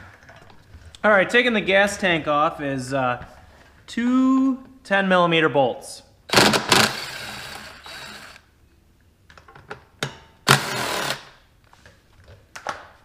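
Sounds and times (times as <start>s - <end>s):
power tool spinning out bolt: 6.3s - 8.4s, 10.5s - 11.4s.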